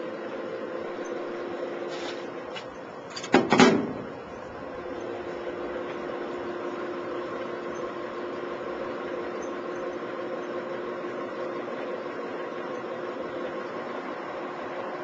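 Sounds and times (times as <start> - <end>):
electric motor humming: 4.1 - 15.0.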